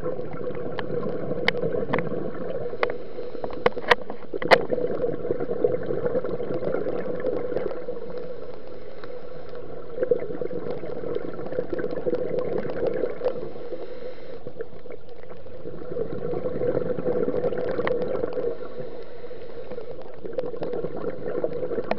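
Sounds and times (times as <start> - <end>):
underwater diver's exhaled bubbles: 0.0 - 21.9.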